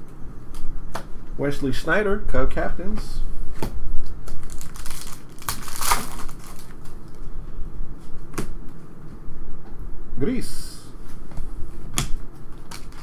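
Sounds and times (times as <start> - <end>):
trading cards rustling: 4.3 - 7.2, 12.6 - 13.0.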